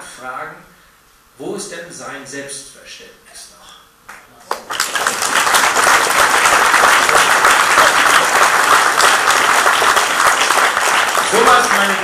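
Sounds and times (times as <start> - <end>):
hands clapping close to microphone: 4.1 - 12.0
audience applauding: 4.4 - 12.0.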